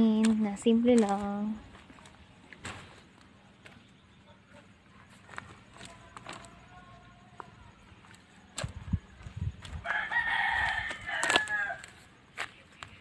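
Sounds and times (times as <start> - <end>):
rooster crowing: 9.7 - 12.1.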